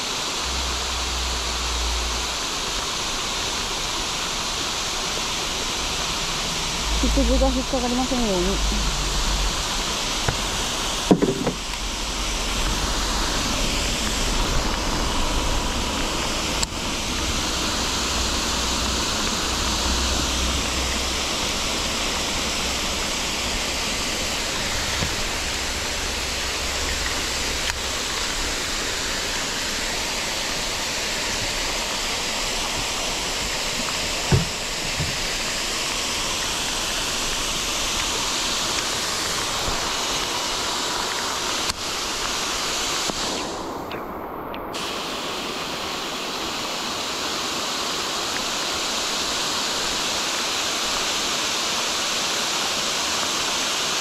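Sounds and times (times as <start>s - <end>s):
heavy rain on lake: 0.0s - 54.0s
waterfall rushing: 0.0s - 54.0s
soft knocks: 11.1s - 11.6s.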